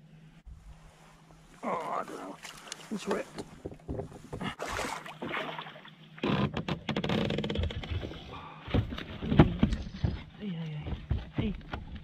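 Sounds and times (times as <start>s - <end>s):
net splashing and draining water: 4.5s - 6.0s.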